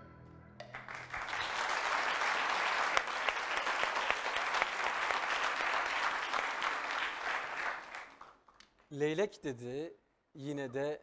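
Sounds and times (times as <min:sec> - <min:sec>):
studio audience applauding: 0:00.6 - 0:08.6.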